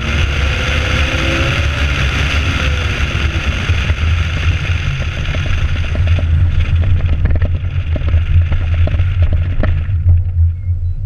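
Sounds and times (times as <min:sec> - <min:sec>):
car engine drone: 0:00.0 - 0:11.0
wind rushing over microphone: 0:00.0 - 0:11.0
small clicks and ticks: 0:03.8 - 0:10.4.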